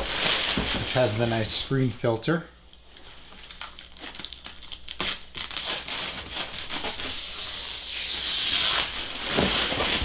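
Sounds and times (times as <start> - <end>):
packaging rustling: 0.0 - 1.5, 8.6 - 10.0
packaging crackles: 2.7 - 6.0.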